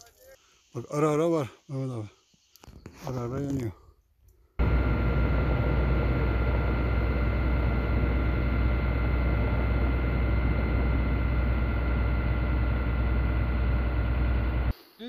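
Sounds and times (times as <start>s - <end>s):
helicopter in flight: 4.6s - 14.7s.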